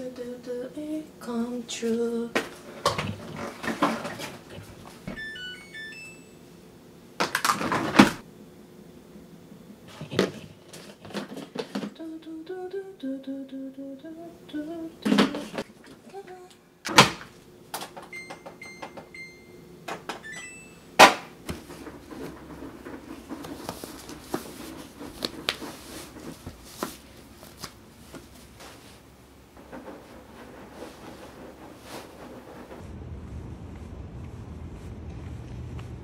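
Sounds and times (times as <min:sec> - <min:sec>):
washing machine button beeps: 0:05.1 - 0:06.4, 0:18.0 - 0:20.9.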